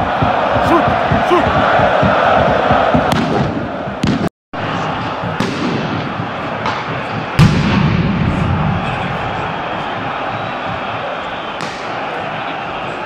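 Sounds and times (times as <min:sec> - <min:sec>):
stadium crowd noise: 0:00.0 - 0:13.0
firecracker bangs: 0:05.3 - 0:10.2, 0:11.6 - 0:12.0.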